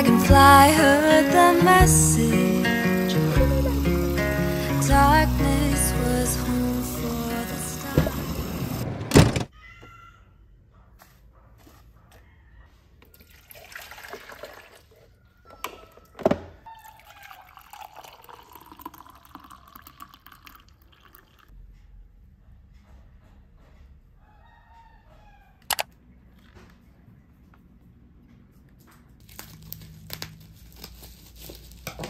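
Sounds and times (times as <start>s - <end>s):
loud clunk: 8.0s - 9.5s
coffee pouring into glass mug: 13.2s - 14.9s, 16.8s - 21.5s.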